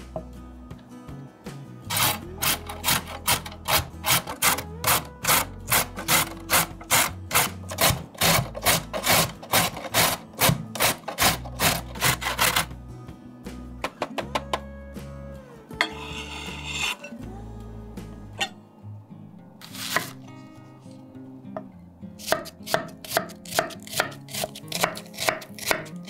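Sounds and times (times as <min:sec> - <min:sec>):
carrot grating on box grater: 0:01.9 - 0:12.7, 0:22.2 - 0:26.0.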